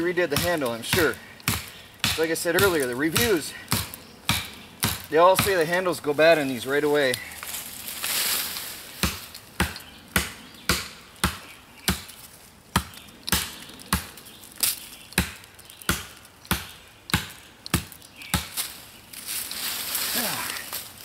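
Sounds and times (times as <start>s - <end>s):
tomahawk chopping wood: 0.0s - 5.9s, 9.0s - 18.7s.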